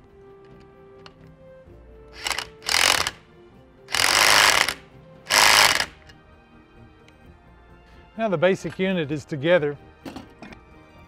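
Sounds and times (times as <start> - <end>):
power drill driving a nut: 2.2 - 3.2, 3.9 - 6.1.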